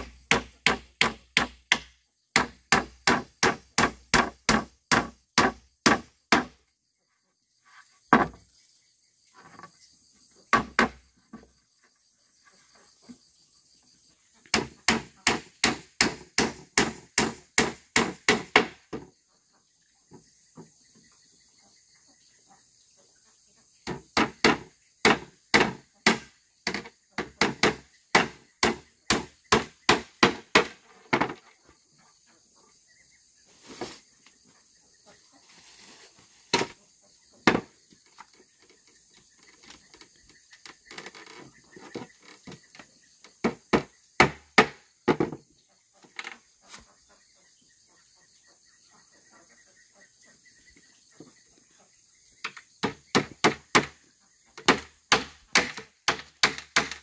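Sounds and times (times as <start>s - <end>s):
hammer striking wood: 0.0s - 6.6s, 10.5s - 11.0s, 14.5s - 19.1s, 23.8s - 31.4s, 37.4s - 37.7s, 43.4s - 45.4s, 52.8s - 54.0s, 54.6s - 57.0s
insect chirring: 1.7s - 57.0s.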